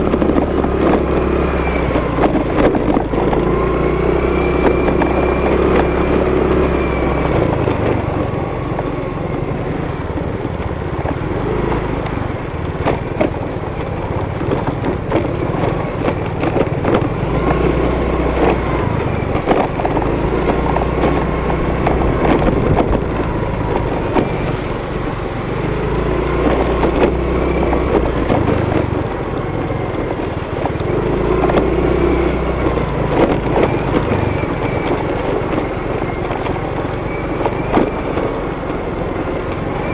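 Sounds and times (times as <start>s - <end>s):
motorcycle engine running: 0.0s - 39.9s
knocks and rattles from bumps: 10.1s - 39.9s.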